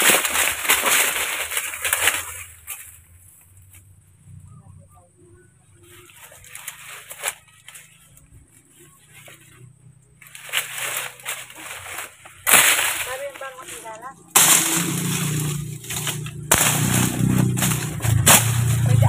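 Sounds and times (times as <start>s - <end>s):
brush snapping: 0.0s - 3.0s, 6.1s - 8.2s, 10.2s - 19.0s
dry leaves rustling and crackling: 0.0s - 4.0s, 5.6s - 19.0s.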